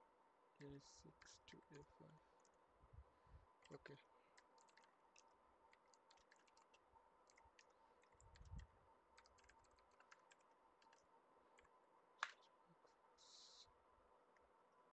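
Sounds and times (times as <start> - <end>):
keyboard typing: 3.6 - 12.4.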